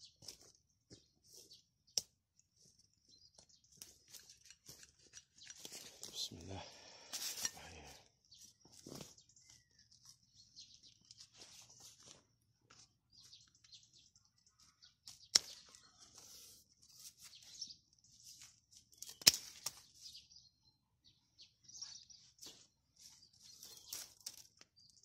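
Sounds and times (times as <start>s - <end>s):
twigs snapping: 3.7s - 6.2s, 15.0s - 16.3s, 18.9s - 20.0s, 23.5s - 25.0s
dry leaves crackling and rustling: 23.0s - 25.0s.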